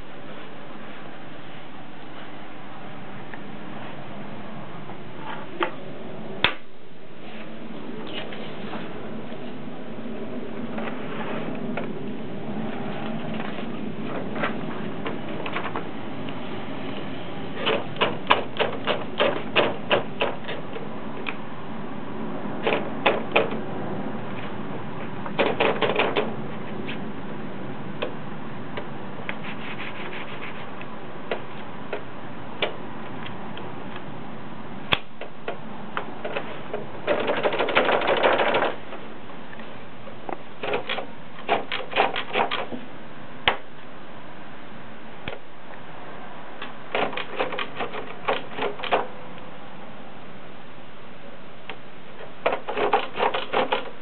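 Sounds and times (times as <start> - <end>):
typewriter keys clicking: 17.6 - 20.6, 25.4 - 26.3, 37.1 - 38.8, 46.9 - 49.1, 52.5 - 53.9.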